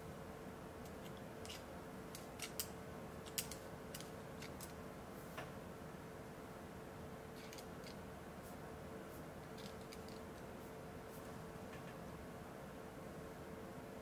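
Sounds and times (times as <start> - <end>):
faint steady hum: 0.0 - 14.0
caliper jaw clicks and scrapes: 1.1 - 2.7
coin being handled: 9.4 - 10.5.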